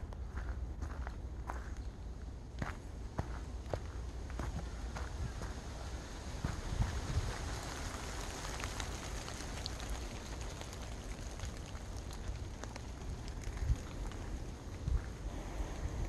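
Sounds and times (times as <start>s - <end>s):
footsteps crunching on trail: 0.0s - 5.6s, 13.7s - 15.3s.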